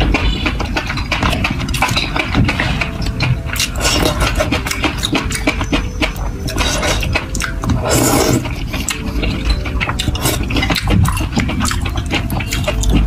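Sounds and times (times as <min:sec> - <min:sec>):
chopsticks stirring in bowl: 0:00.0 - 0:13.0
wet chewing smacks: 0:00.6 - 0:13.0
wet noodle slurp: 0:06.5 - 0:08.9.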